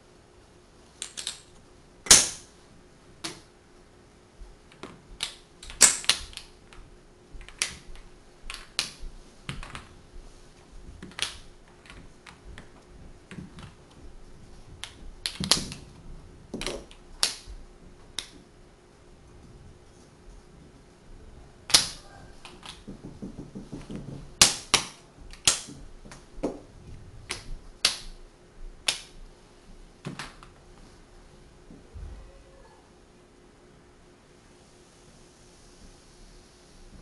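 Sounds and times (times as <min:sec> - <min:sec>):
wooden blocks clicking together: 0:01.0 - 0:02.4, 0:04.7 - 0:06.8, 0:07.4 - 0:09.9, 0:11.0 - 0:13.9, 0:14.8 - 0:15.9, 0:16.5 - 0:17.5, 0:21.7 - 0:26.6, 0:27.3 - 0:28.1, 0:28.8 - 0:29.1.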